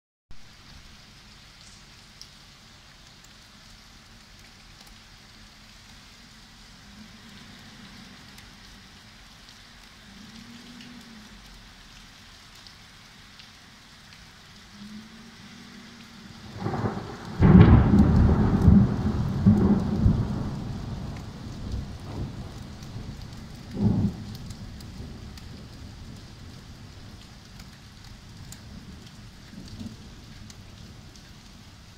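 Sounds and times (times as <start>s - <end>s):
rain falling on wet street: 0.3s - 31.9s
thunderclap rumbling: 16.4s - 27.2s.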